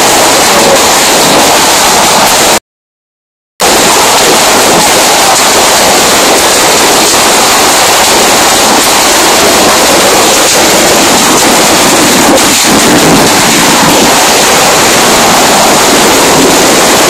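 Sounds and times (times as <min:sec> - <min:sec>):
fireworks hissing roar: 0:00.0 - 0:02.6, 0:03.6 - 0:17.0.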